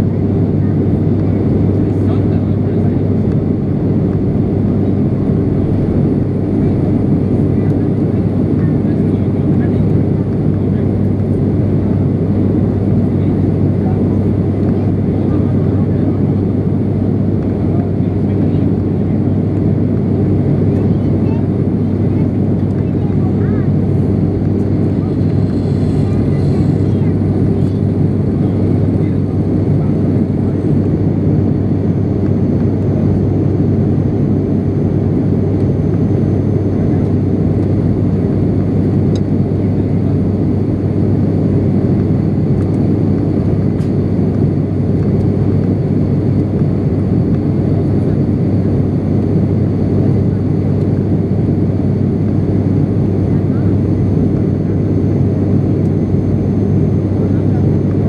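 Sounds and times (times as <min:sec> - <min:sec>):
turboprop engine drone in cabin: 0:00.0 - 0:58.0.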